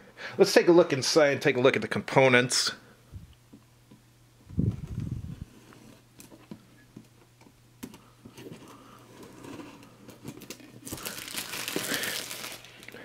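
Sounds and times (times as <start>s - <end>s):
shrink wrap crinkling: 10.1s - 13.0s.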